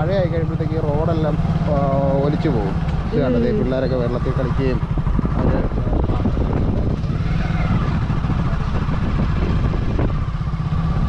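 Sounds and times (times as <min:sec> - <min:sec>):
motorcycle engine running: 0:00.0 - 0:11.0
wind rumble on microphone: 0:03.0 - 0:11.0.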